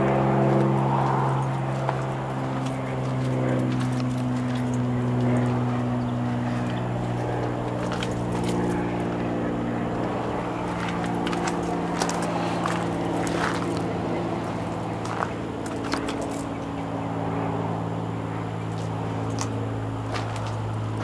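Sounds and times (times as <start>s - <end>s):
low mechanical hum: 0.0s - 21.0s
light clicks and scuffs: 18.8s - 20.7s.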